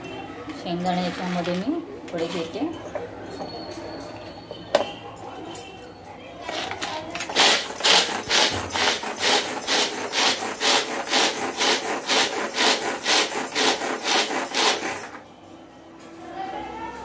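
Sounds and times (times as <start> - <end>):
pull-cord chopper whirring rattle: 7.3 - 15.2.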